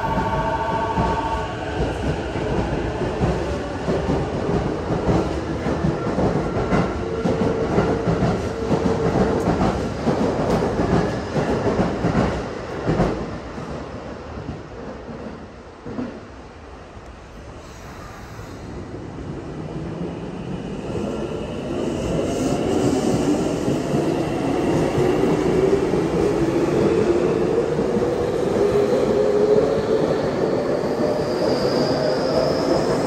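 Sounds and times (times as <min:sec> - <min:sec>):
train wheels rumbling on rails: 0:00.0 - 0:16.4.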